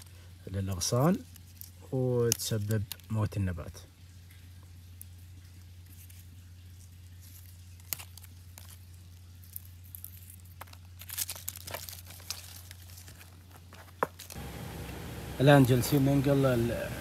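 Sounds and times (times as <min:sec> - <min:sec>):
dry leaves crackling and rustling: 0:00.7 - 0:03.2, 0:05.5 - 0:15.8
steady low hum: 0:12.7 - 0:17.0.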